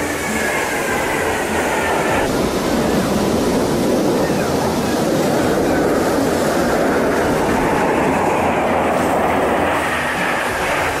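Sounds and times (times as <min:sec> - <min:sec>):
jet aircraft rumbling overhead: 0:00.0 - 0:11.0.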